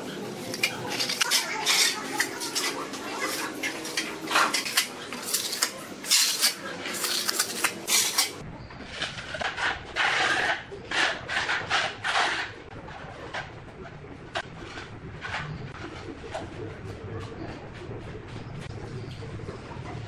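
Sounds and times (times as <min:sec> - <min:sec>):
trowel scraping wet cement: 0:00.0 - 0:12.5.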